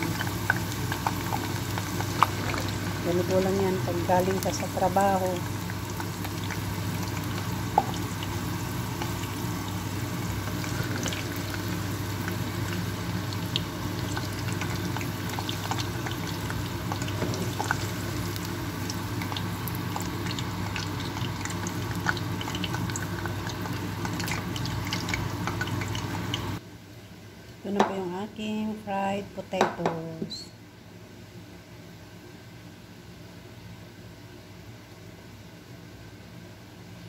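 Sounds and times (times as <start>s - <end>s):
fries sizzling in hot oil: 0.0s - 26.6s
steady low hum: 0.0s - 26.8s.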